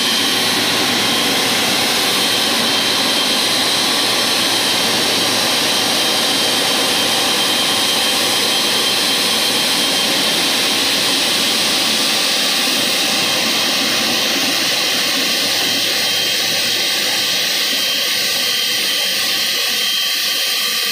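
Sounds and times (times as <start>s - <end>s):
high engine whine: 0.0s - 20.9s
jet engines rushing: 0.0s - 20.9s.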